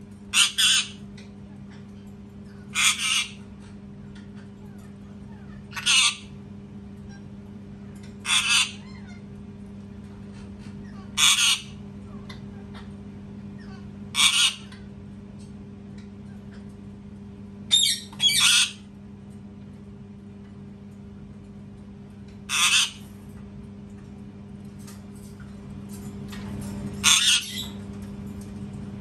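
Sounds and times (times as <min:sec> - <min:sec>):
steady low hum: 0:00.0 - 0:29.0
parakeet screeching: 0:00.3 - 0:01.0, 0:02.7 - 0:03.4, 0:05.7 - 0:06.3, 0:08.2 - 0:09.2, 0:10.9 - 0:11.8, 0:13.6 - 0:14.7, 0:17.7 - 0:18.8, 0:22.5 - 0:23.0, 0:27.0 - 0:27.8.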